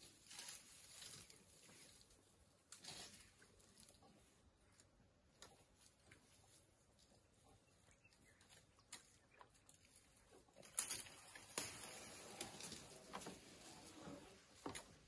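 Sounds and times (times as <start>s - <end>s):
leaves rustling: 0.0s - 4.0s, 9.7s - 15.0s
twigs cracking and snapping: 8.4s - 13.4s.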